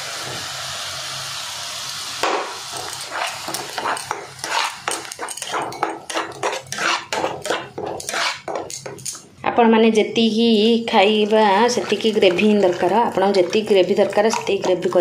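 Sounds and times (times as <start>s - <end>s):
paste sizzling in hot oil: 0.0s - 9.1s, 10.9s - 15.0s
steel spoon scraping a pan: 2.7s - 9.2s, 11.5s - 15.0s.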